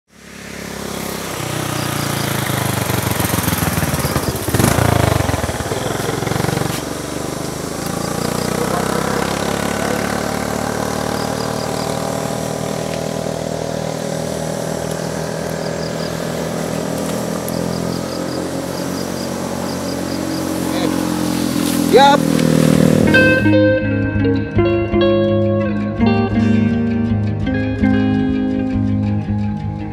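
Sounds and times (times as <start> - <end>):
small engine running: 0.1 - 23.5.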